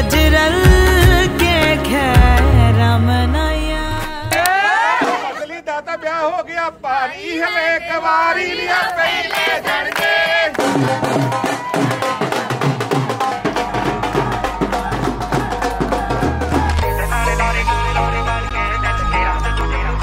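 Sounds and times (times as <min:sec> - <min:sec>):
fast drum beat: 0:00.6 - 0:01.6, 0:02.2 - 0:02.6, 0:10.6 - 0:17.0
deep bass note: 0:13.8 - 0:20.0.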